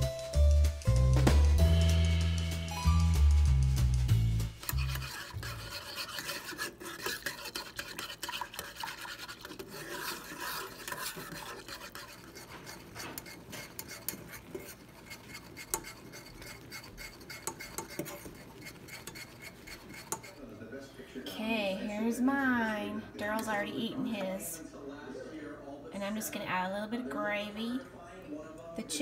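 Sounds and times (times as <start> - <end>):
music: 0.0 - 5.1
gravy bubbling: 4.6 - 20.6
metal whisk scraping saucepan: 4.6 - 20.6.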